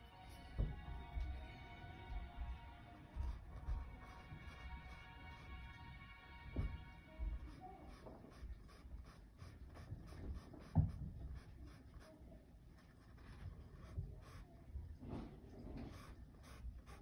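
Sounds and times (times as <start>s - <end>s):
paintbrush scratching on canvas: 0.1s - 17.0s
dull knock: 0.5s - 1.4s, 6.5s - 7.0s.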